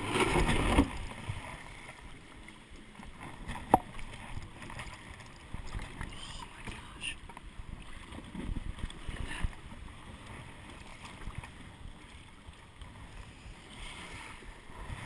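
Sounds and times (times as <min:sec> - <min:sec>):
water sloshing around hull: 0:00.0 - 0:15.0
wind rumble on microphone: 0:03.0 - 0:15.0.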